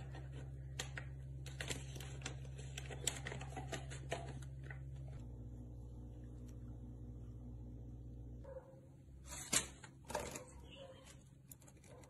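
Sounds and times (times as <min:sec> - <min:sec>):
steady low hum: 0:00.0 - 0:09.3.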